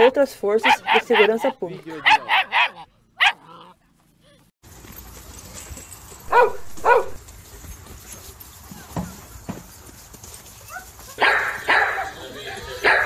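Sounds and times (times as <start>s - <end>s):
dog barking: 0.0s - 3.6s, 6.3s - 7.2s, 10.7s - 12.2s.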